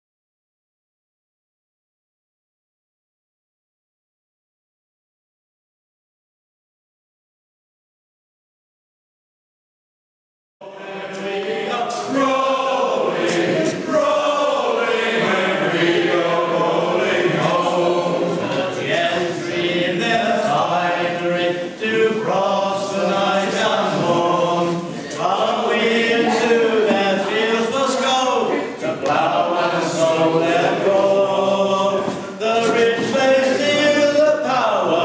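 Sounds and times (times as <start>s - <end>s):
a cappella group singing: 10.6s - 35.0s.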